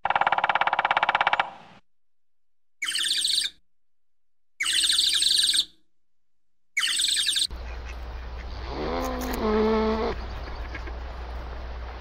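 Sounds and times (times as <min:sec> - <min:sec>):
woodpecker chattering: 0:00.0 - 0:01.6, 0:06.8 - 0:09.4
low rising animal call: 0:08.5 - 0:10.9.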